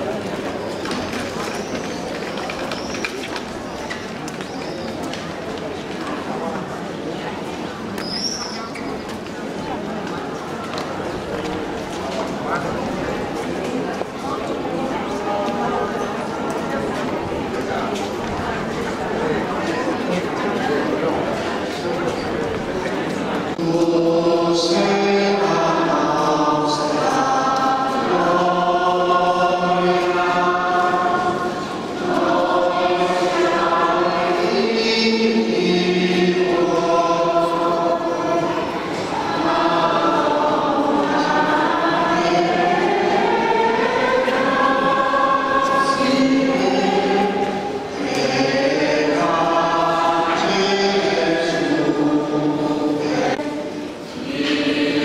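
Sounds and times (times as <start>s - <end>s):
choir singing a hymn: 23.5s - 55.0s.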